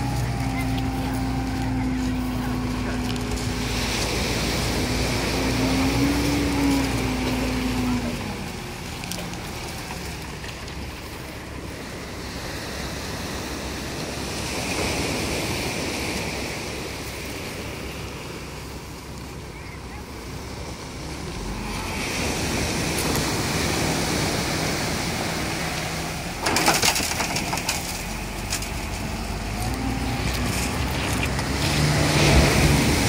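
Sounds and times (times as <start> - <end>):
diesel engine running: 0.0 - 33.0
surf: 0.0 - 33.0.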